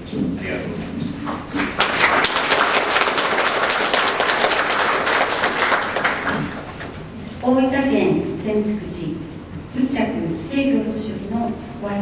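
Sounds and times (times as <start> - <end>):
audience applauding: 1.5 - 7.0.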